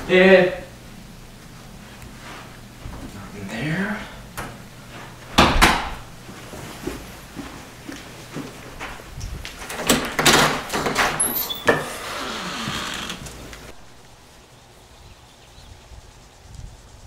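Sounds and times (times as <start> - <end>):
rush of noise as door opens: 4.2 - 6.2, 8.8 - 14.0
door handle and latch clunks: 5.4 - 6.0, 9.6 - 11.9
door squeak: 9.9 - 13.4.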